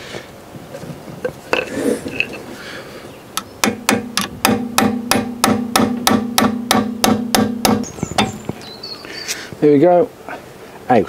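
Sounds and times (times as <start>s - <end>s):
hammer striking steel punch: 3.6s - 8.4s.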